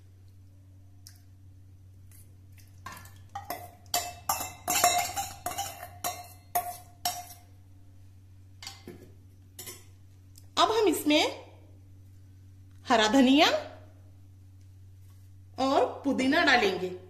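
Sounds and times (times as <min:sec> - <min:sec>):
spoon scraping steel bowl: 0:03.4 - 0:07.5.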